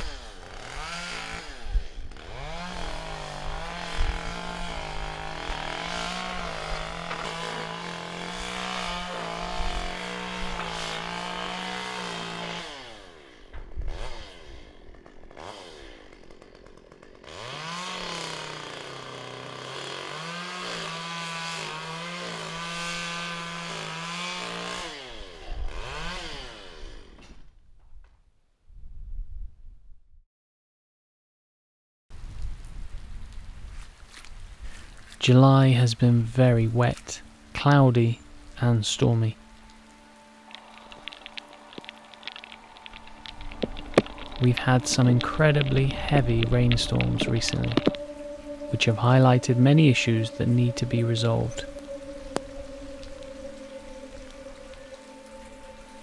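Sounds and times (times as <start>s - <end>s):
small engine revving: 0.0s - 27.3s.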